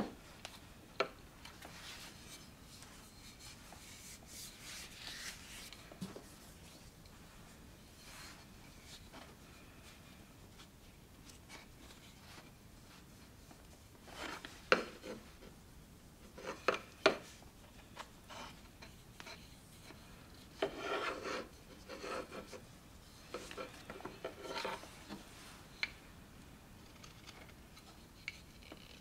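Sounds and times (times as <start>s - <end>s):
hands rubbing wooden handle: 1.6s - 6.9s.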